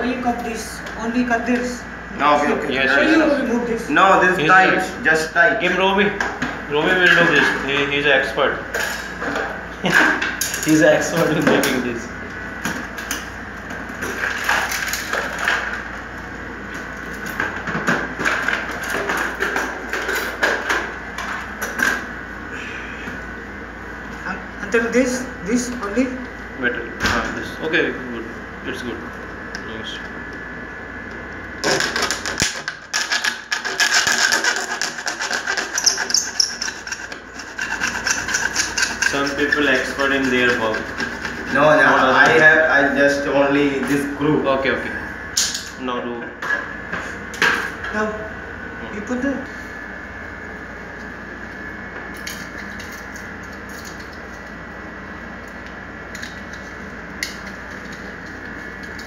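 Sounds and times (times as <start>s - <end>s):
hand tool rasping plastic: 31.6s - 41.6s.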